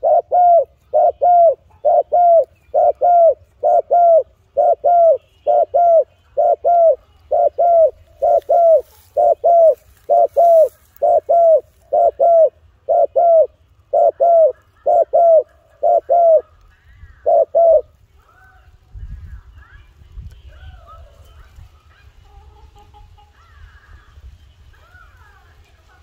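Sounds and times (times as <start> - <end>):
dove cooing: 0.0 - 17.9.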